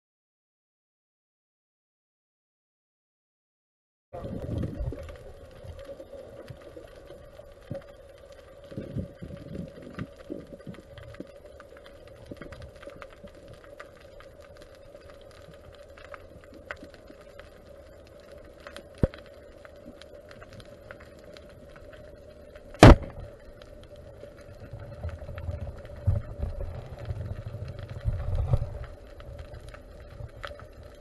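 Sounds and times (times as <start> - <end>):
faint steady tone: 4.2 - 31.0
camera striking seabed: 19.0 - 19.2, 22.7 - 23.5.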